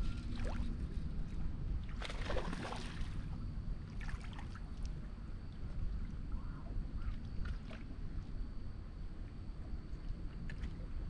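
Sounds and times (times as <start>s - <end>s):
wind rumbling on microphone: 0.0s - 11.0s
water lapping against boat: 1.7s - 8.4s, 9.2s - 11.0s.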